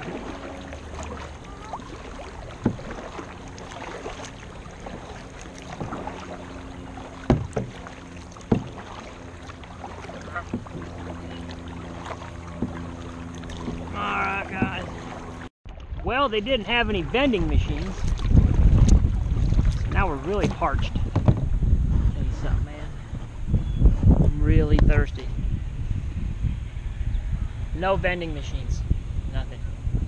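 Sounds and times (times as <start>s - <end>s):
kayak paddling: 0.0s - 22.2s
steady low hum: 0.0s - 30.0s
sharp knocks: 7.2s - 8.9s.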